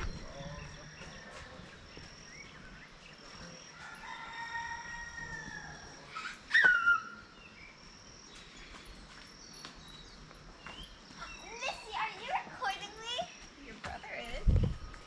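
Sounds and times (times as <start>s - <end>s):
rooster crowing: 3.8s - 6.1s.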